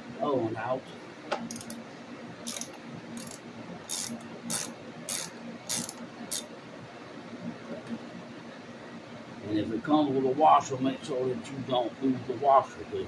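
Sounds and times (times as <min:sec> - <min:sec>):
socket ratchet clicking: 0:01.5 - 0:01.8, 0:02.5 - 0:06.5.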